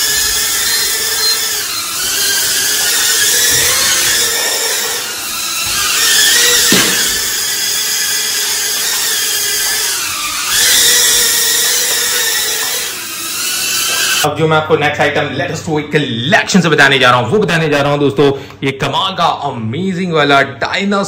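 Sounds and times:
toy drone motors whining: 0.0 - 14.3.

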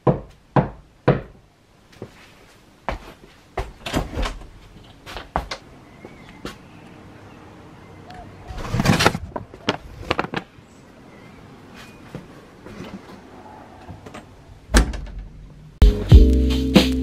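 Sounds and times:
scraping rustle: 8.5 - 10.5.

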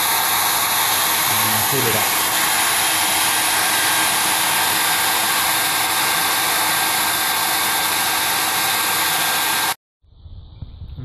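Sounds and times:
hair dryer running: 0.0 - 9.8.

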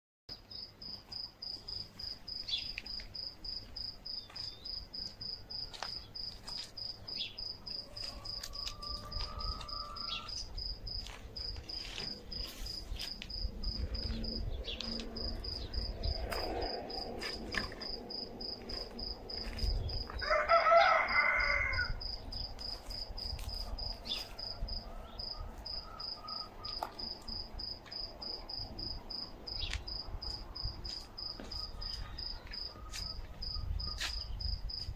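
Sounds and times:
crickets chirping: 0.5 - 34.9
rooster crowing: 7.7 - 10.4, 20.1 - 22.1.

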